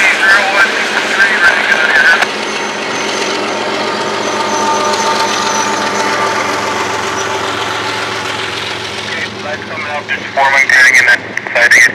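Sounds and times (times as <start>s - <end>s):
diesel locomotive engine humming: 0.0s - 11.9s
train wheels rolling on rails: 0.0s - 11.9s.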